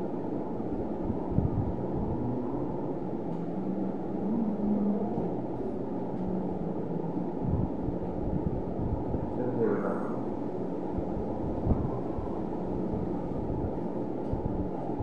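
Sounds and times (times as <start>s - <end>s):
low background rumble: 0.0s - 15.0s
faint pitched sounds: 1.7s - 8.3s.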